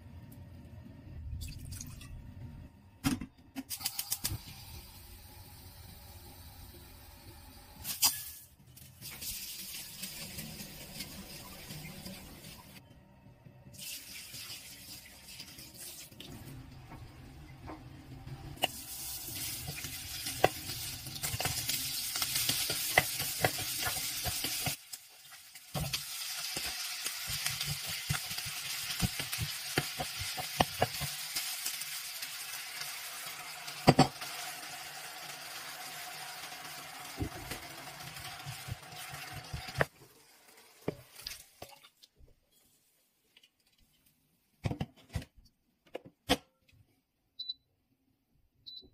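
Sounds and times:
meat sizzling in a hot pot: 18.6s - 41.4s.

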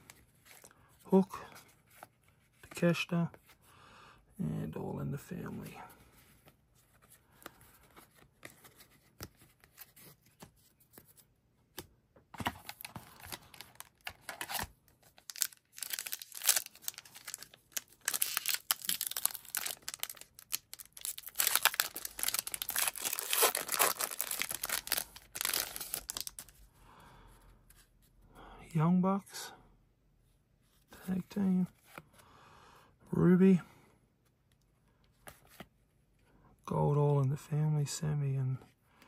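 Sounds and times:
foil wrapper tearing and crinkling: 15.2s - 26.5s.

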